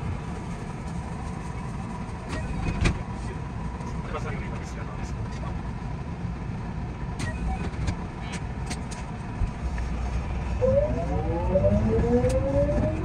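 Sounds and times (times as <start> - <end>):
electric train rumble: 0.0 - 13.0
traction motor whine: 10.2 - 13.0.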